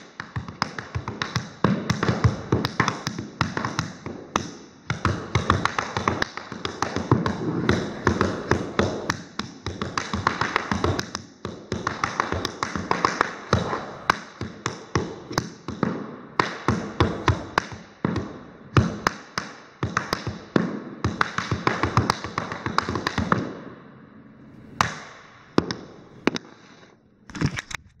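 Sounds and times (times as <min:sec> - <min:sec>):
tap shoes on hardwood floor: 0:00.0 - 0:23.5.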